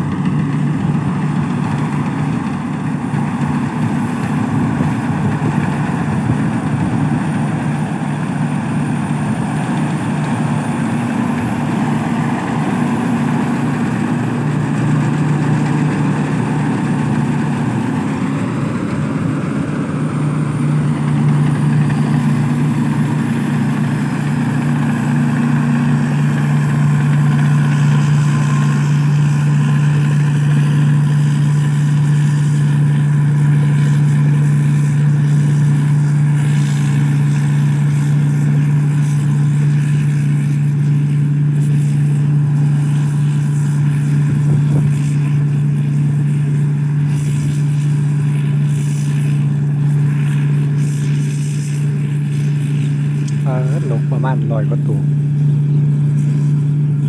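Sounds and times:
combine harvester diesel engine: 0.0 - 57.0
threshing machinery turning: 0.0 - 57.0.

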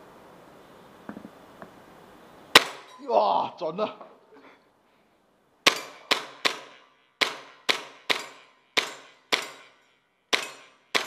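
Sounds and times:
airsoft pistol shots echoing: 2.6 - 2.9, 5.6 - 11.0.

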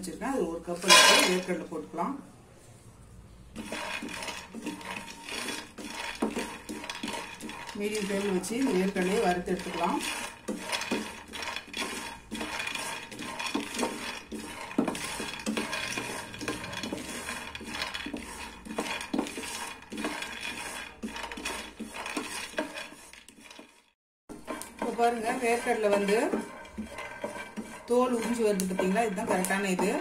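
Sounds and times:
spatula scraping pan: 0.6 - 1.7, 3.5 - 30.0
peanuts rattling in frying pan: 0.8 - 1.5, 3.6 - 30.0.

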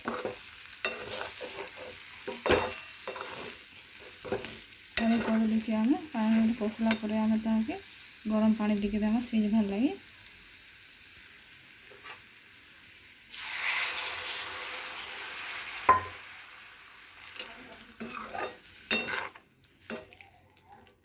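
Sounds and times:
spatula scraping a pan: 0.0 - 5.6, 11.9 - 12.2, 17.2 - 20.1
curry sizzling in a pan: 0.0 - 21.0
water poured into hot pan: 13.3 - 16.4.

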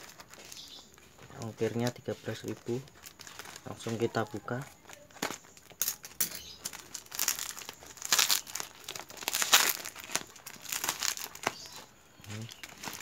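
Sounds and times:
plastic mailer crinkling: 0.0 - 13.0.

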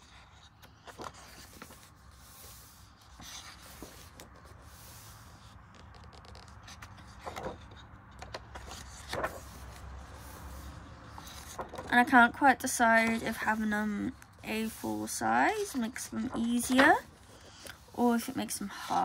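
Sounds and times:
paper rustling and scraping: 0.0 - 19.0.

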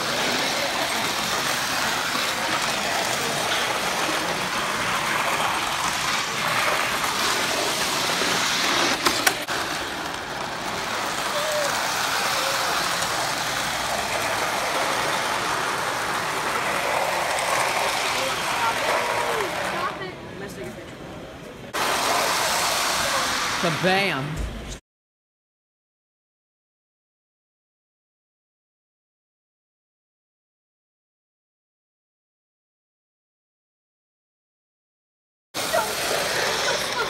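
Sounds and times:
model trains rumbling on metal track: 0.0 - 20.0, 21.8 - 23.6, 35.6 - 37.0
chatter of crowd in hall: 0.0 - 23.7, 35.6 - 37.0.

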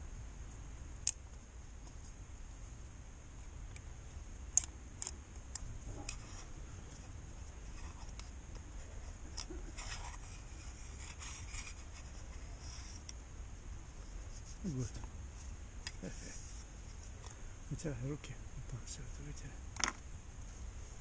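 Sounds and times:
gloved hands scratching plastic: 7.5 - 13.1.

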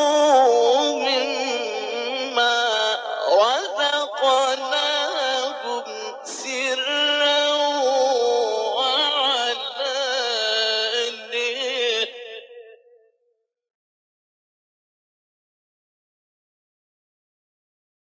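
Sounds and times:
man chanting melodically: 0.0 - 12.8.

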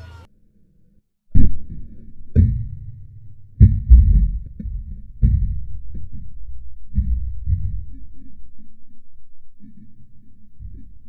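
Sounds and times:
heavy low thumps: 1.4 - 8.1.

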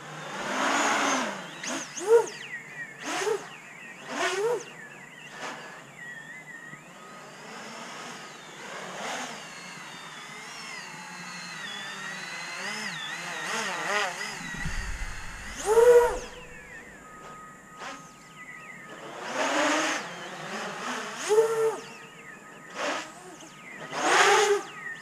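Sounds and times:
quadcopter motors whining: 0.0 - 25.0.

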